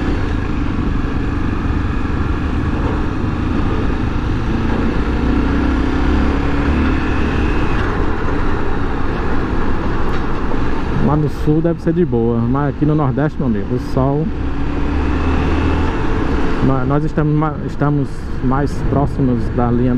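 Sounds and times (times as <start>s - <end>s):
motorcycle engine running: 0.0s - 9.7s
road noise: 0.0s - 19.9s.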